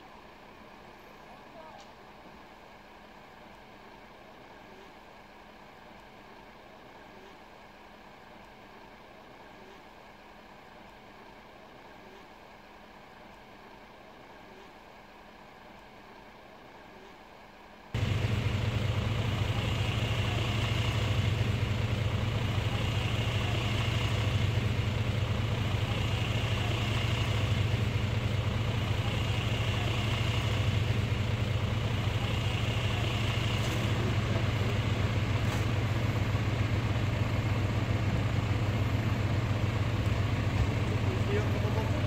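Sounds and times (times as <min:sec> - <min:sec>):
low mechanical machinery drone: 0:18.0 - 0:42.0.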